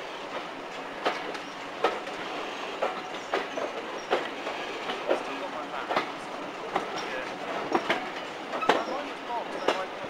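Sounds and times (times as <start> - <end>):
train rolling noise: 0.0 - 10.0
train wheels clicking over rail joints: 0.0 - 10.0.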